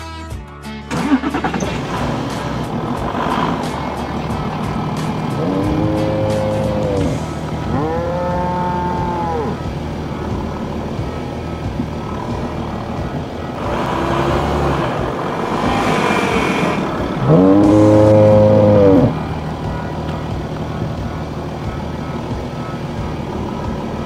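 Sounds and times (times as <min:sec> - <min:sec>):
rushing noise: 0:00.9 - 0:24.0
cow mooing: 0:05.3 - 0:09.7, 0:13.6 - 0:19.2.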